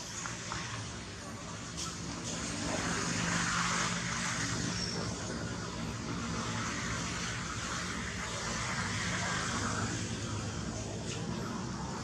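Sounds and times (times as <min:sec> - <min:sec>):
vehicle engine drone: 0:00.0 - 0:12.0.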